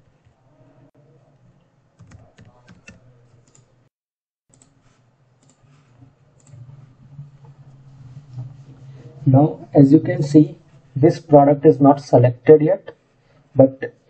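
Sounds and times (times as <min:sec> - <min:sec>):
computer keyboard keystrokes: 0:02.0 - 0:03.7.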